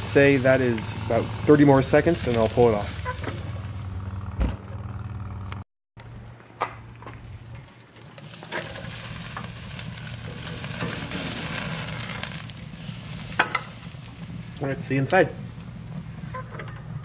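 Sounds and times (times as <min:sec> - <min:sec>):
meat sizzling on a grill: 0:00.0 - 0:04.0, 0:08.0 - 0:17.0.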